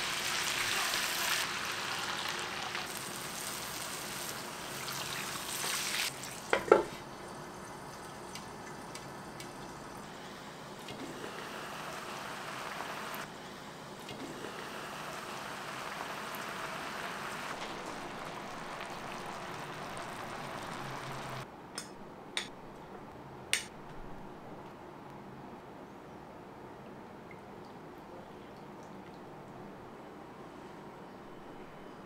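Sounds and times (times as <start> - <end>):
liquid simmering with hiss: 0.0 - 21.4.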